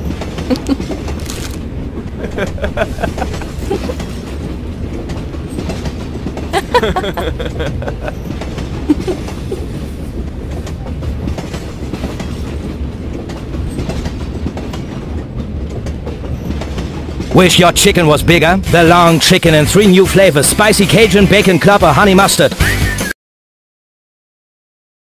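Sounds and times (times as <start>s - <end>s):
wheels clattering: 0.0s - 19.8s
metro train rumble: 0.0s - 23.1s.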